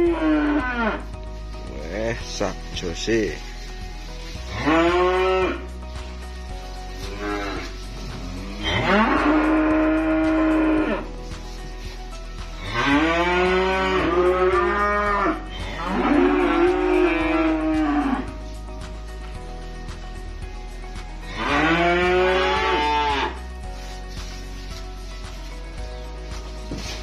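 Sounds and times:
calf mooing: 0.0s - 1.0s, 4.5s - 5.6s, 7.0s - 7.8s, 8.4s - 11.1s, 12.6s - 18.3s, 21.3s - 23.4s.

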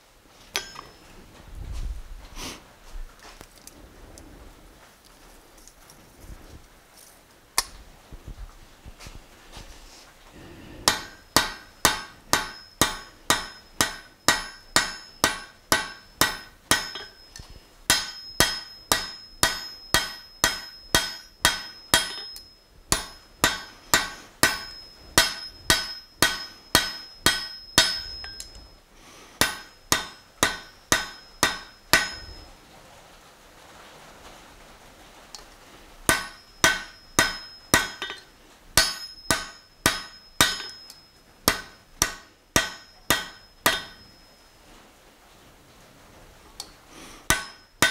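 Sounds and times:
hammer ringing on anvil: 0.6s - 1.0s, 10.8s - 28.7s, 29.4s - 32.5s, 36.1s - 44.5s, 47.3s - 47.9s.

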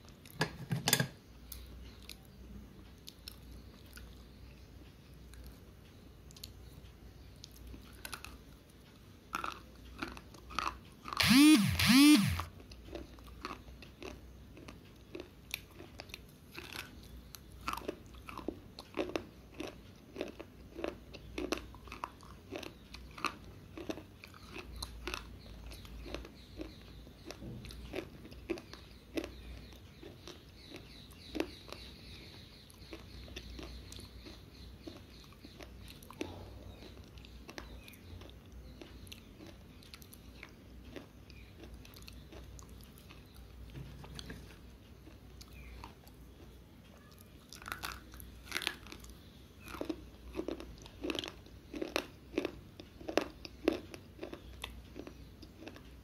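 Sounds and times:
pencils being chewed crunching: 7.4s - 56.0s
loud squeals rising and falling: 11.2s - 12.5s.

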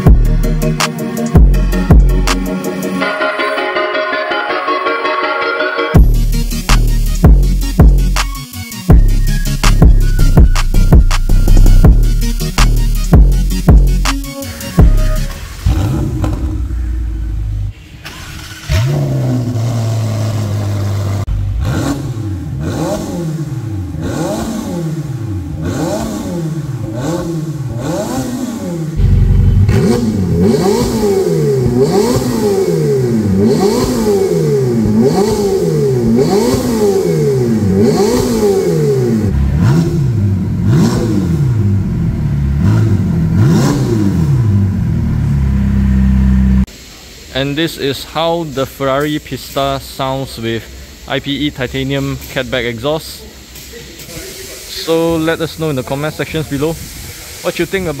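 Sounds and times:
car engine revving: 9.0s - 46.7s.

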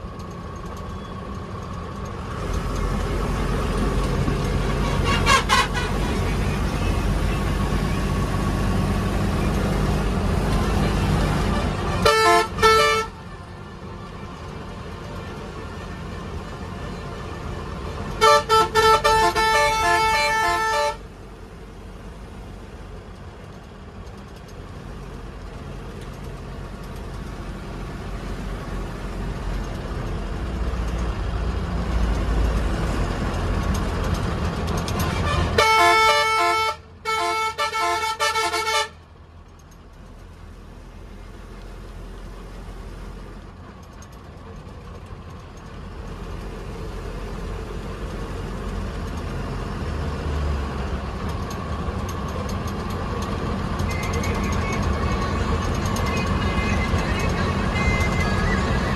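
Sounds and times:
bus engine and road rumble: 0.0s - 58.9s
bus horn blasts: 4.7s - 6.2s, 10.7s - 13.4s, 14.8s - 21.1s, 34.9s - 39.0s.

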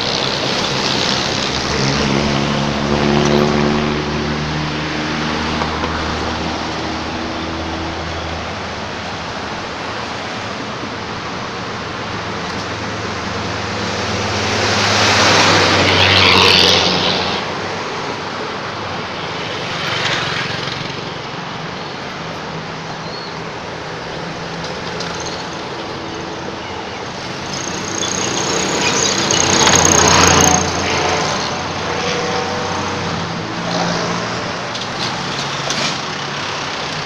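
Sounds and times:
road traffic rumble: 0.0s - 37.0s
truck driving past close: 27.4s - 37.0s.

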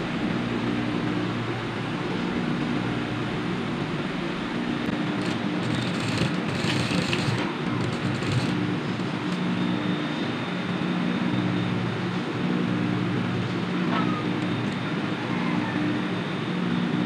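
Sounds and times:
sewing machine running: 4.9s - 9.2s.

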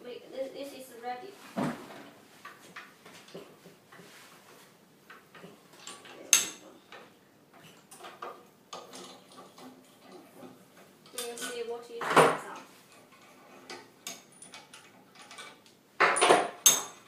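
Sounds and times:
metal handles and clamps clicking: 5.3s - 7.0s, 7.9s - 10.2s, 11.0s - 11.7s, 12.5s - 17.0s.

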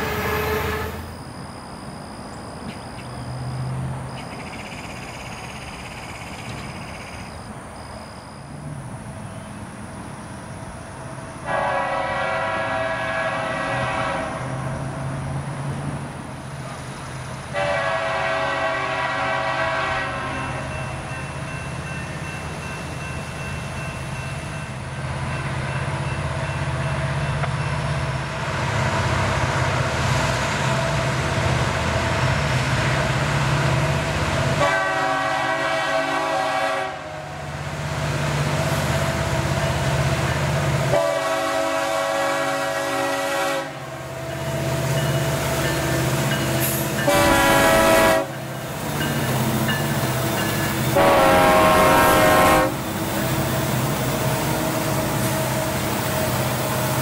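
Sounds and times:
train air horn: 0.0s - 1.2s, 11.4s - 14.7s, 17.5s - 20.7s, 34.6s - 37.4s, 40.9s - 44.1s, 46.6s - 48.4s, 50.9s - 53.0s
diesel locomotives rumbling: 0.0s - 57.0s.

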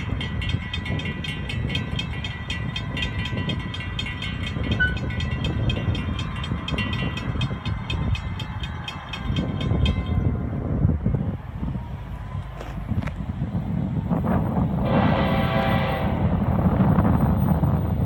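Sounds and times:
crossing warning bell ringing: 0.0s - 11.0s, 14.8s - 18.0s
low rumble: 11.0s - 18.0s.

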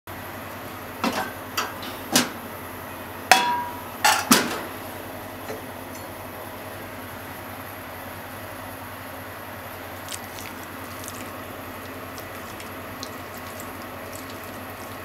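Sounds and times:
dishes and utensils clinking: 3.3s - 4.5s.

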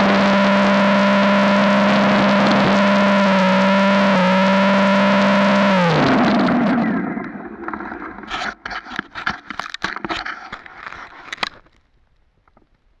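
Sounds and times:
electric motor spinning down: 0.0s - 7.7s
scrapes and knocks: 7.6s - 11.8s.

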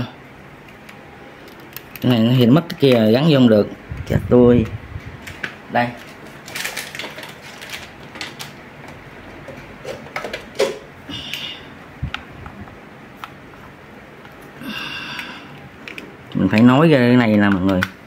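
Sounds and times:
plastic electronics clicking: 15.1s - 18.0s.

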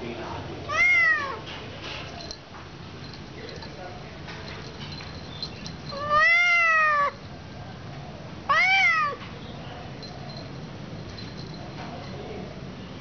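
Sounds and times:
cat meowing: 0.7s - 1.5s, 5.9s - 7.2s, 8.5s - 9.2s.

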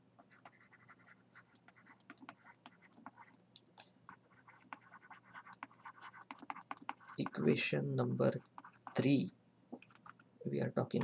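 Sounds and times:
stylus scratching on tablet: 0.2s - 3.4s, 4.1s - 7.6s, 8.3s - 9.1s.

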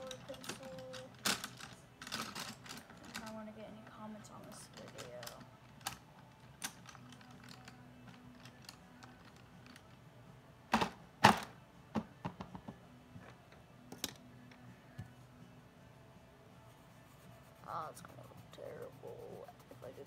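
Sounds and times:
pencils clattering in case: 0.0s - 9.9s.

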